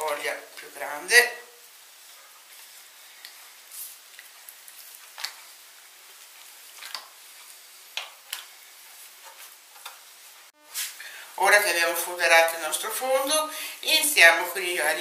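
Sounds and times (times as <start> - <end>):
soft squishes of pasta sheets: 1.6 - 11.0.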